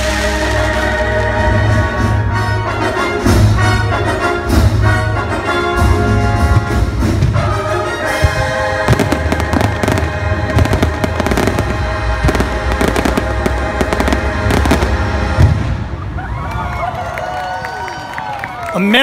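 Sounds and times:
show music: 0.0s - 17.6s
fireworks cracking and popping: 8.2s - 16.0s.

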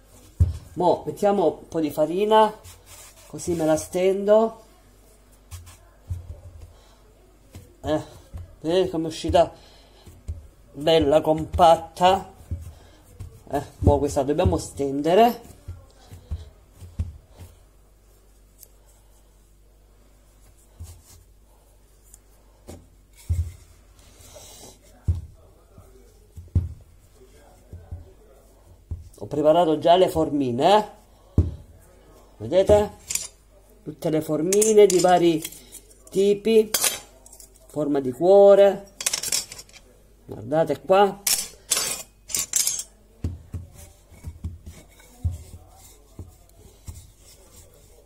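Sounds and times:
rubbing rustle: 2.2s - 4.2s, 43.8s - 48.0s
rolling pin thumping on dough: 5.5s - 6.8s, 7.5s - 17.6s, 25.0s - 29.4s, 43.2s - 47.8s
metal cookie cutters clinking: 38.9s - 39.8s, 41.3s - 43.0s.

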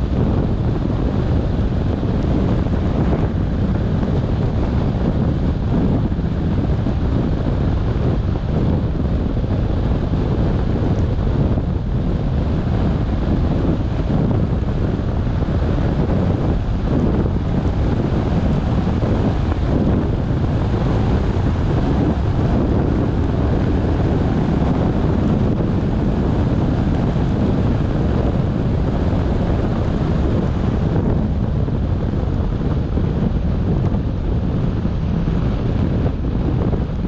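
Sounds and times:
low wind rumble: 0.0s - 37.0s.

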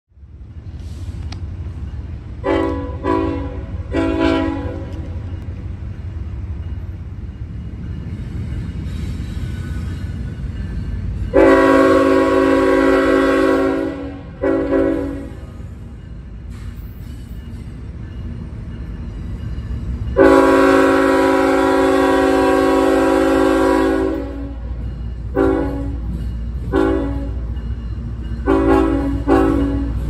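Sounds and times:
locomotive air horn blasts: 2.4s - 5.2s, 11.3s - 15.6s, 20.2s - 24.7s, 25.3s - 26.1s, 26.7s - 27.5s, 28.4s - 30.0s.

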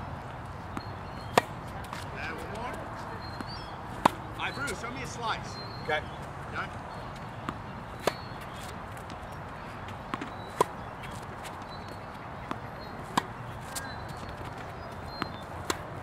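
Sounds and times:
steady outdoor hiss: 0.0s - 16.0s
tennis balls hit with rackets: 0.7s - 4.8s, 7.3s - 16.0s.

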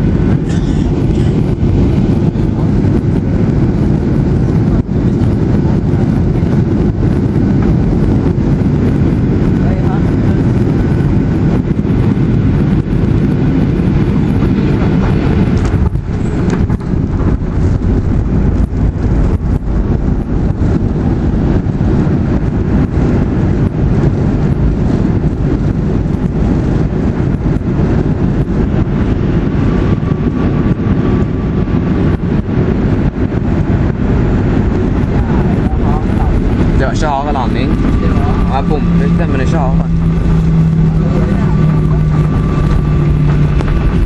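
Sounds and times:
airplane engines and airflow roar: 0.0s - 44.0s
plane touchdown: 0.0s - 44.0s
runway rumble and rattles: 0.0s - 44.0s.

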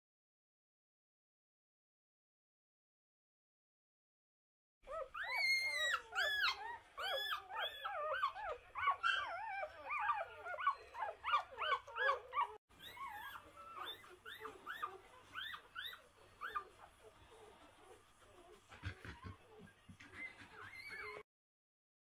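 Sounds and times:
puppies squealing and whimpering: 4.9s - 21.3s.

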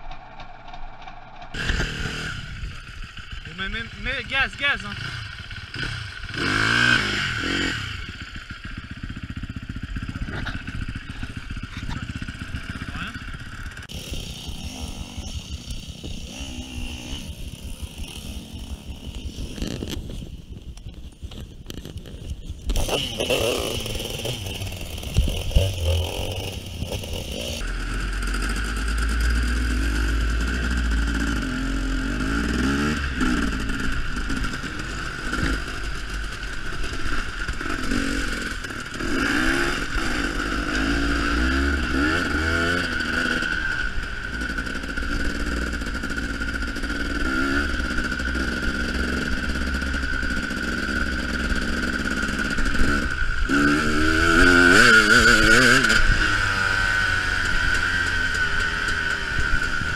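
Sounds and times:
motorcycle engine revving: 0.1s - 59.9s.

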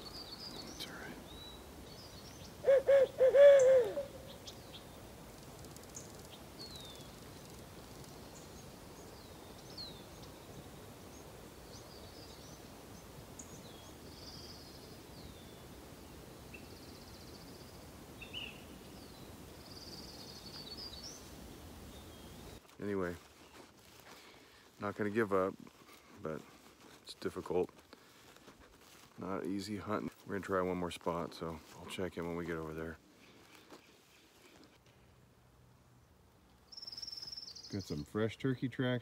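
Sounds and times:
faint songbirds chirping: 0.0s - 39.0s
owl hoots: 2.6s - 4.5s.

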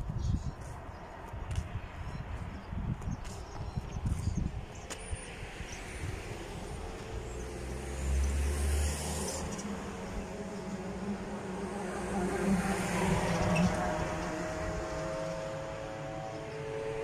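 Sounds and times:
passing vehicle engine: 4.2s - 17.0s.

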